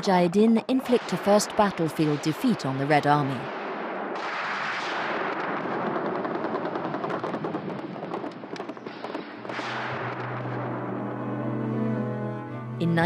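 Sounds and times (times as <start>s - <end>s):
rapid gunfire: 0.8s - 10.7s.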